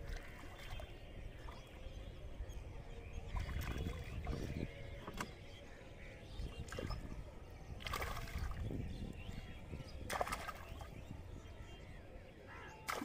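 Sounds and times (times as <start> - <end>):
hands splashing in water: 10.1 - 10.9.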